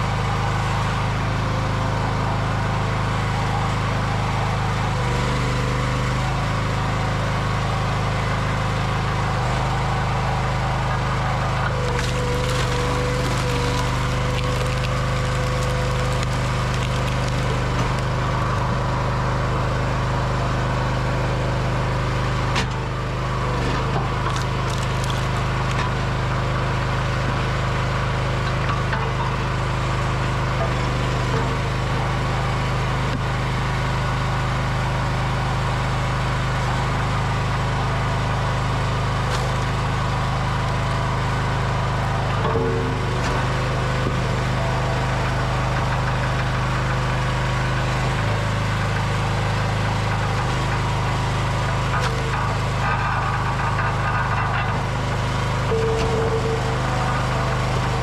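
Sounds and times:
log splitter engine running: 0.0 - 58.0
wood cracking and splintering: 10.8 - 19.3, 23.4 - 26.1.

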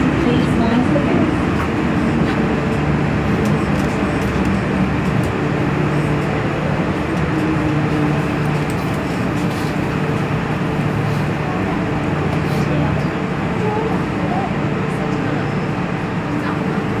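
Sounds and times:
train motor low hum: 0.0 - 17.0
train wheels rumbling: 0.0 - 17.0.

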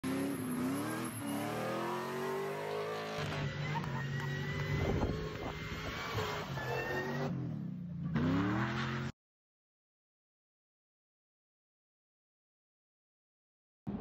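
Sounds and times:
vehicle engine revving: 0.0 - 9.1.

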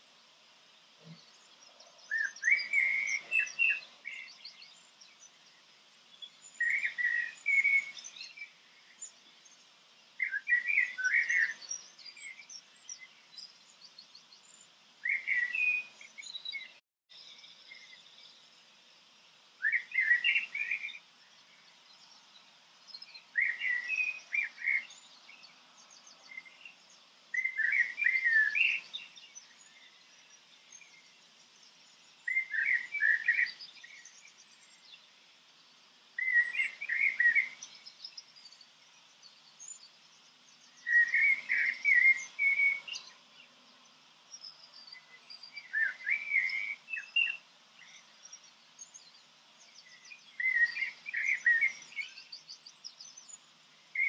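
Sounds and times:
songbird chirping: 0.0 - 54.0.

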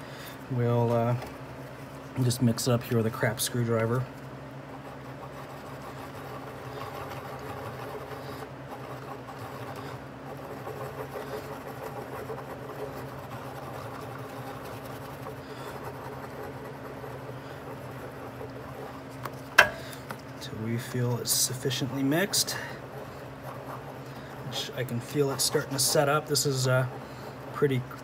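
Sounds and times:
low machine hum: 0.0 - 28.0
screwdriver scraping on cardboard: 4.8 - 19.5, 21.8 - 28.0.

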